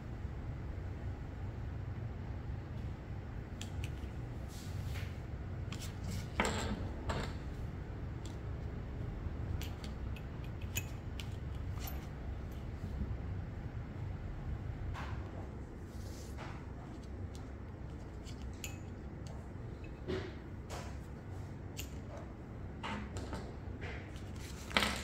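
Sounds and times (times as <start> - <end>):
scrape: 5.8 - 6.3, 15.9 - 16.6.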